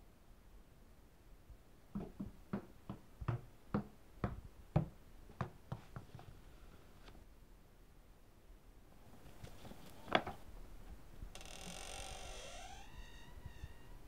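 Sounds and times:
rubber ball bouncing down stairs: 1.9s - 6.1s.

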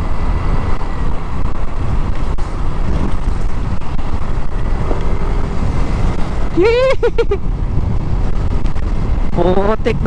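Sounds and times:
scooter engine running: 0.0s - 7.4s
wind rushing on microphone: 0.0s - 10.0s.

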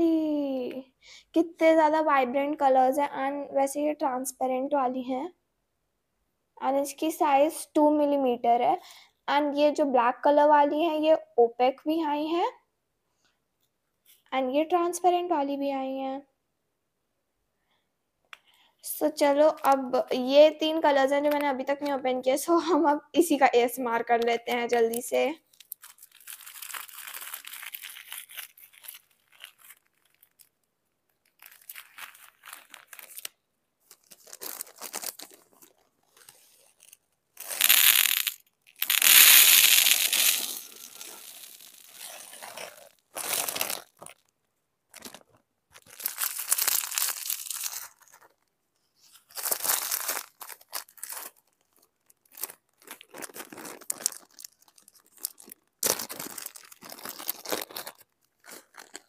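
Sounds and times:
plastic packets crinkling: 24.9s - 48.5s, 49.2s - 59.0s
beads pouring into plastic box: 36.8s - 44.1s, 45.9s - 48.2s.

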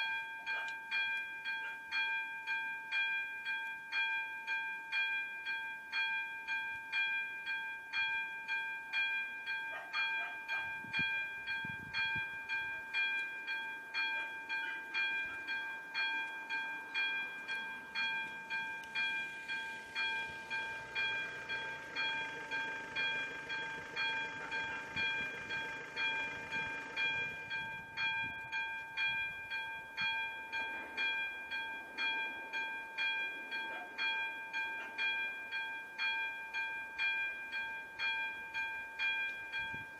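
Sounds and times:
level crossing warning bell ringing: 0.0s - 39.9s
train running noise: 17.4s - 30.0s.

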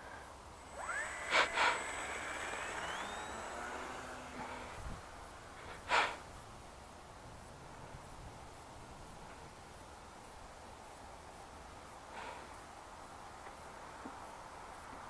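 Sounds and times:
model plane electric motor whine: 0.5s - 6.2s
short breath-like burst: 5.6s - 6.2s.

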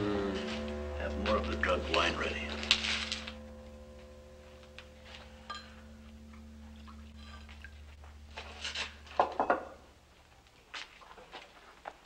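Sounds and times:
held music chord: 0.0s - 8.5s
cup clinking: 5.4s - 7.8s.

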